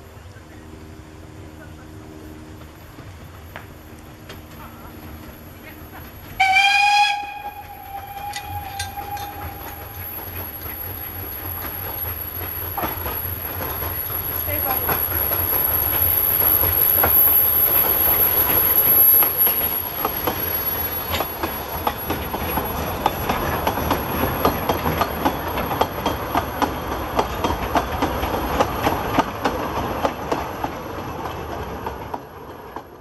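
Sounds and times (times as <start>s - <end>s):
steam locomotive passing: 0.0s - 33.0s
wheels clacking over rail joints: 2.6s - 33.0s.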